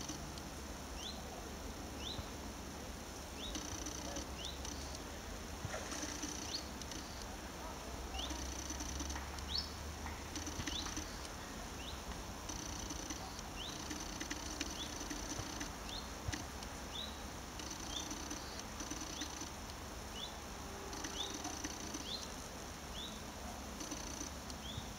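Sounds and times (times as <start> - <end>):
faint clicks: 0.0 - 0.5, 3.4 - 5.1, 5.7 - 7.4, 8.1 - 11.5, 12.1 - 19.8, 20.8 - 22.4, 23.7 - 24.8
high steady buzz: 0.0 - 24.9.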